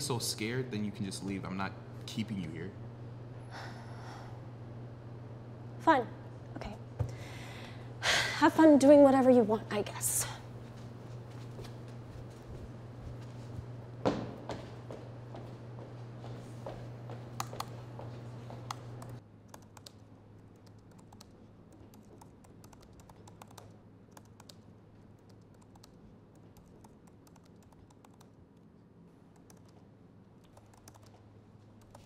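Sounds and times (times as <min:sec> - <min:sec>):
low steady hum: 0:00.0 - 0:32.0
laptop keyboard typing: 0:18.7 - 0:28.4, 0:29.3 - 0:29.8, 0:30.4 - 0:31.2, 0:31.8 - 0:32.0.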